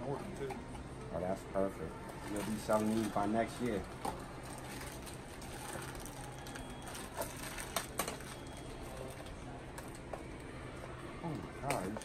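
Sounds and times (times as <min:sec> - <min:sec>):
packaging rustling and crinkling: 0:02.2 - 0:10.0.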